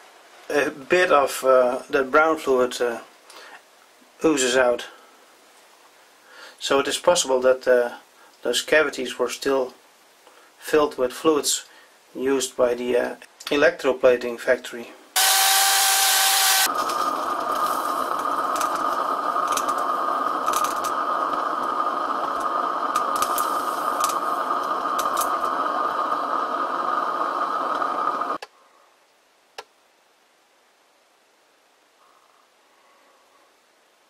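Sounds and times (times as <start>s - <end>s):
drill running in metal bore: 15.2s - 28.4s
gas torch flame hissing: 15.2s - 28.4s.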